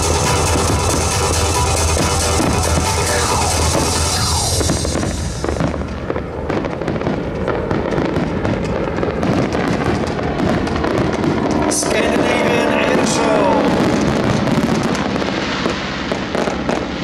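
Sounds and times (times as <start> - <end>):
music: 0.0 - 5.6
fireworks crackling and popping: 0.0 - 17.0
hissing flares: 0.0 - 17.0.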